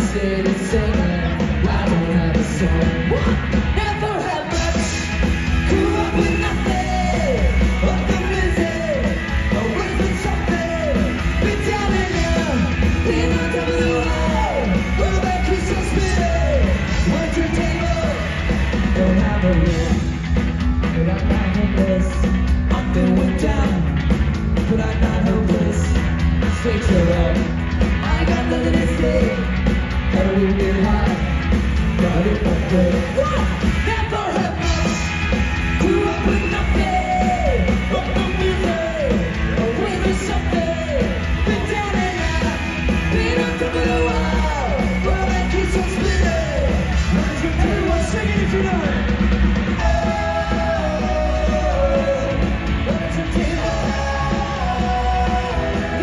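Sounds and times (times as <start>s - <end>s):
person singing: 0.0s - 20.2s, 49.7s - 56.0s
ska-punk band playing live: 0.0s - 56.0s.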